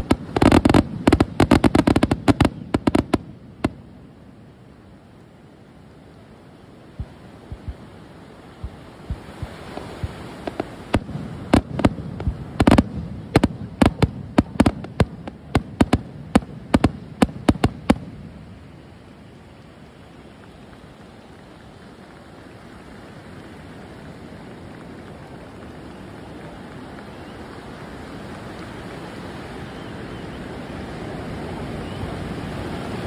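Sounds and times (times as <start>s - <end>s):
fireworks bangs and crackles: 0.0s - 4.4s, 8.6s - 18.9s
surf rushing: 0.0s - 33.0s.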